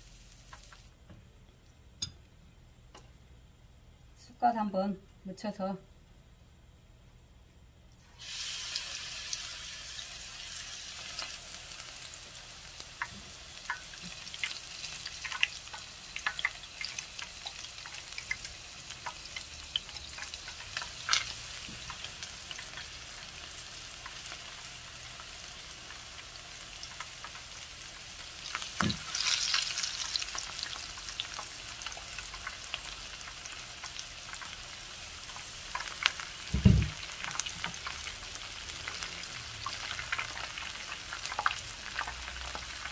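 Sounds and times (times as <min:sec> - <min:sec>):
frying sizzle with crackles: 0:00.0 - 0:01.0, 0:07.9 - 0:42.9
dull knock: 0:36.6 - 0:37.0.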